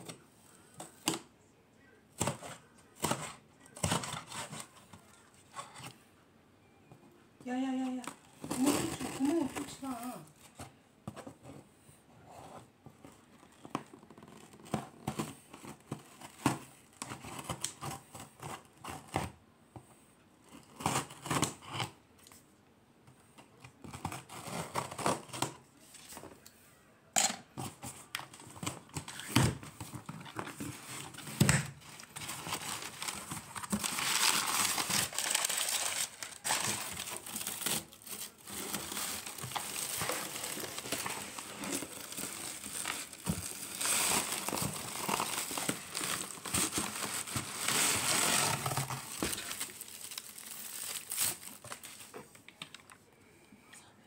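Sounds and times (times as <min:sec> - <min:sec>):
paper packing crinkling: 0:07.9 - 0:10.6, 0:27.6 - 0:53.0.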